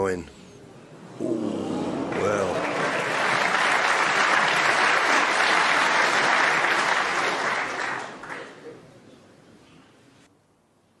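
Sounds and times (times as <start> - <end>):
crowd applauding: 1.2 - 8.9.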